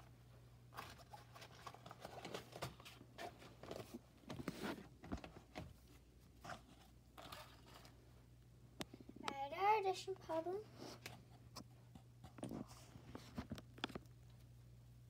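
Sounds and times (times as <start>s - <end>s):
low steady hum: 0.0s - 15.0s
sticks and cards rustling: 0.6s - 8.0s.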